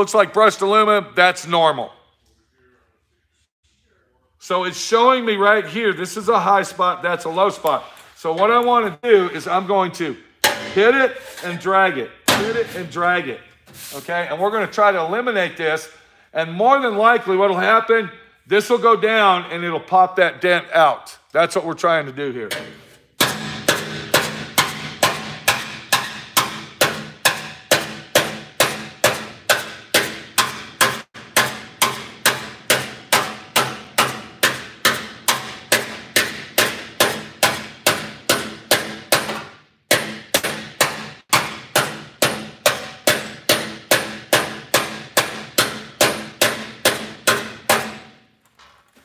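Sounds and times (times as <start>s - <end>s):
hammer striking steel panel: 10.4s - 11.0s, 12.3s - 12.8s, 22.5s - 48.2s.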